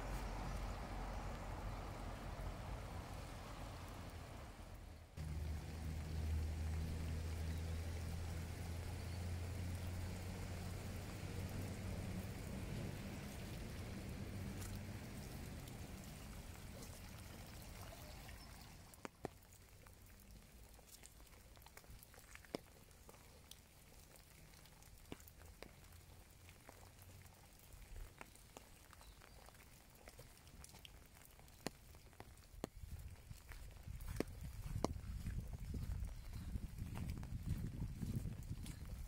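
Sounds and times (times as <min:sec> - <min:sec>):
rain hissing: 0:00.0 - 0:19.5
raindrops dripping and tapping: 0:00.1 - 0:39.0.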